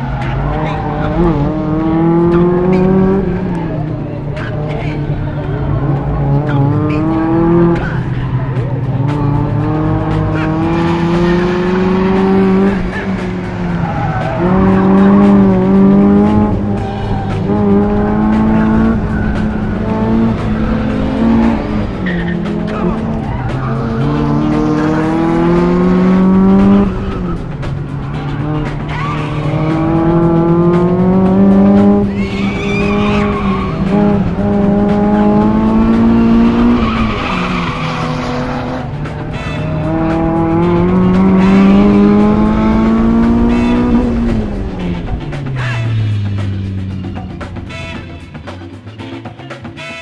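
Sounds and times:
car engine revving: 0.0 - 49.9
tyre squeal: 13.7 - 25.1, 28.3 - 30.3, 31.8 - 40.6.

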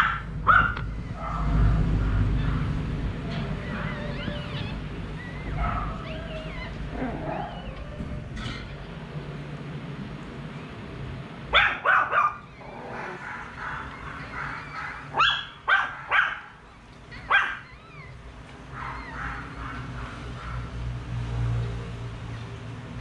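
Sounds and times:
puppies yelping: 0.0 - 9.0, 11.6 - 20.7
puppies squealing: 2.3 - 8.8, 11.9 - 20.0.

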